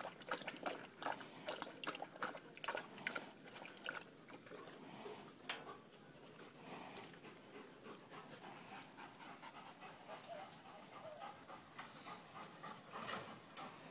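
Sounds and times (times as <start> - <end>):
dog panting: 4.5 - 13.9.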